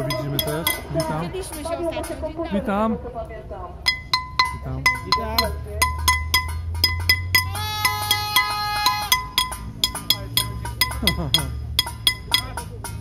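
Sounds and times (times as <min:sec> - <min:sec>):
bells and metal pots clanging: 0:00.0 - 0:02.3, 0:03.8 - 0:13.0
held musical tone: 0:03.9 - 0:13.0.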